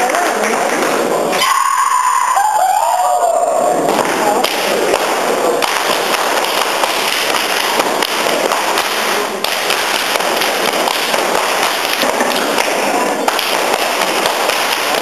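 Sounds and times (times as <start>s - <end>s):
hands slapping thighs and shoes: 3.9s - 15.0s
feet stamping on floor: 4.9s - 15.0s.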